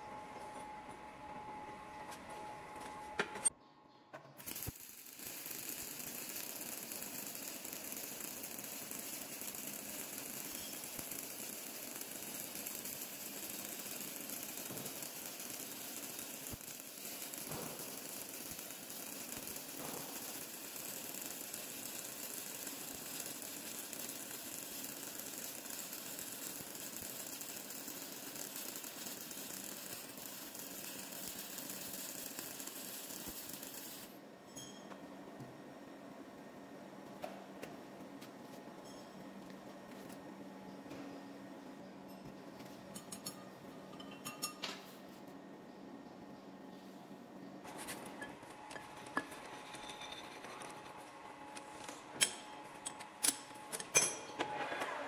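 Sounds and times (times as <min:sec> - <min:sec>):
hiss: 0:04.4 - 0:34.2.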